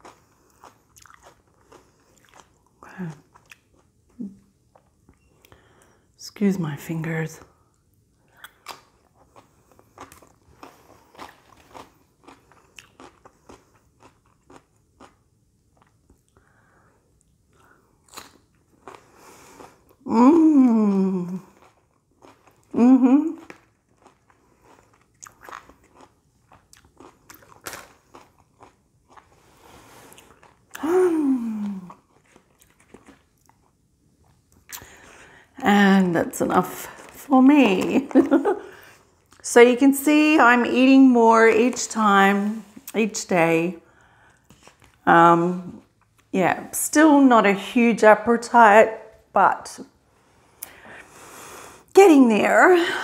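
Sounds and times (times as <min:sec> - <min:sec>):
chewing crunchy cucumber: 0:00.0 - 0:05.6, 0:08.2 - 0:16.4, 0:17.2 - 0:20.1, 0:20.9 - 0:30.8, 0:31.5 - 0:35.1
person humming mmm: 0:20.0 - 0:21.5, 0:22.8 - 0:23.5, 0:30.7 - 0:32.0.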